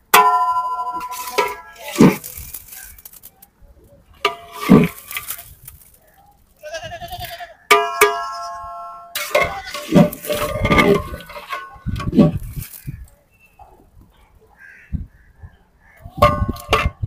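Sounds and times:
metal ladle clanking on pots: 0.1 - 2.3, 4.2 - 5.4, 7.7 - 8.4, 9.1 - 12.6, 16.1 - 17.0
bleat-like call: 6.6 - 7.6.

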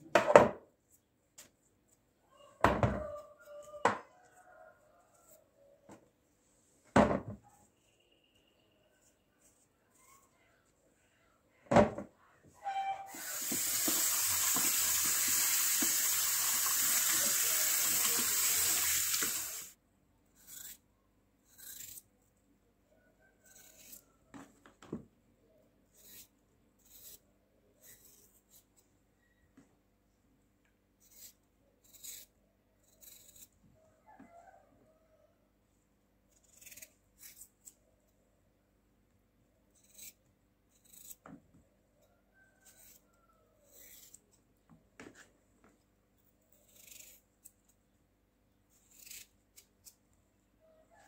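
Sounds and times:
knife cutting raw potato: 13.0 - 19.6, 20.3 - 22.1, 23.4 - 24.6, 25.5 - 28.8, 31.0 - 33.6, 36.3 - 38.2, 39.7 - 41.5, 42.6 - 45.2, 46.5 - 47.9, 48.7 - 50.1
kitchen tap running: 13.2 - 19.7.

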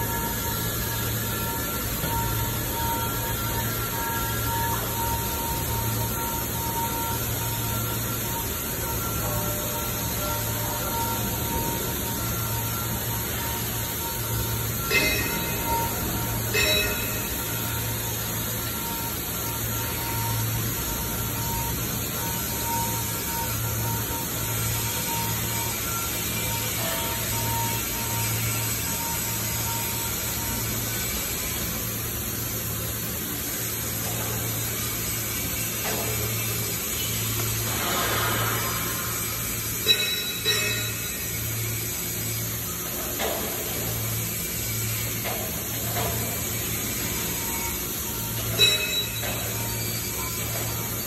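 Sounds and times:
arc welding hiss: 0.0 - 51.0
faint steady whine: 0.0 - 51.0
workshop background hum: 0.0 - 51.0.

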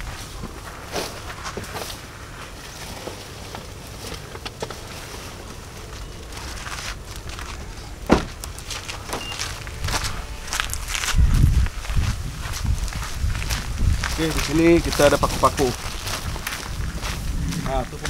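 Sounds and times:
loud thump: 8.1 - 8.4.

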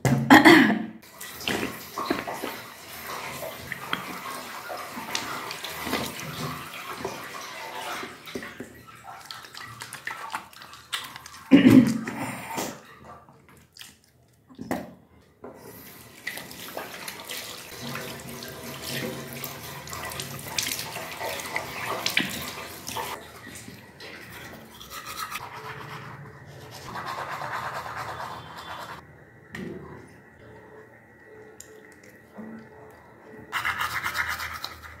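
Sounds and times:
toothbrush scrubbing teeth: 9.0 - 12.8, 24.2 - 29.0, 33.5 - 35.0.

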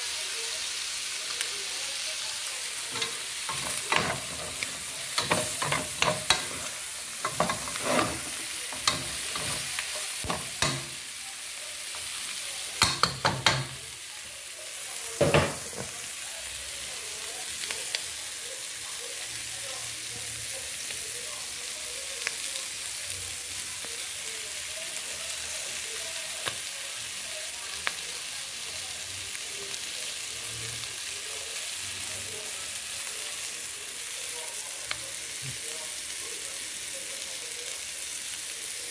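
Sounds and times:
food sizzling in a metal pot: 0.0 - 38.9
spoon scraping a pot: 2.9 - 11.0.

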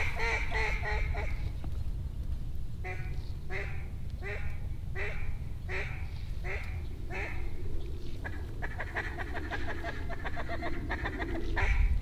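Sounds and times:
duck quacking: 0.0 - 1.4, 2.8 - 7.4, 8.2 - 11.9
steady low rumble: 0.0 - 12.0.

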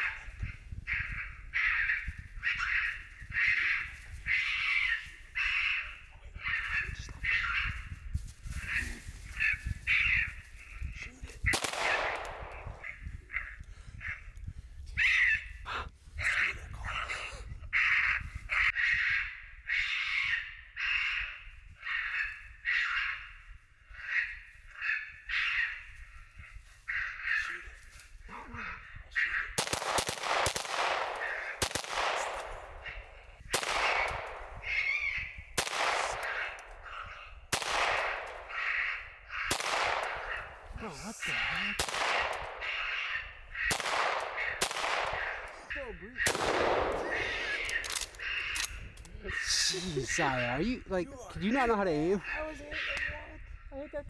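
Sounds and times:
harsh cawing calls: 0.0 - 8.0, 8.6 - 14.3, 15.0 - 15.6, 17.7 - 53.9
gunshots with long echo: 11.4 - 13.1, 29.2 - 48.8
loud sharp crack: 11.5 - 12.8, 29.6 - 34.8, 35.6 - 36.6, 37.5 - 40.4, 41.8 - 43.0, 43.6 - 45.5, 46.3 - 48.2.

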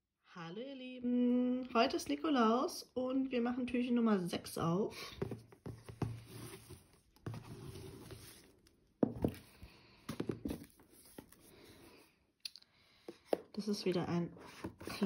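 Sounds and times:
ribbon rustling and sliding: 10.1 - 12.0.

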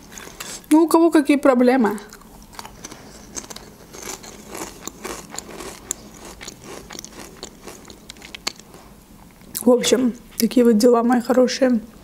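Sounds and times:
potato chips crunching: 2.1 - 8.9.

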